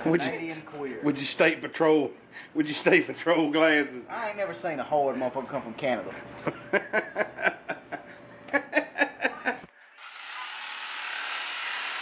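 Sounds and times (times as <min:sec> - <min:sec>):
man laughing: 0:06.4 - 0:09.8.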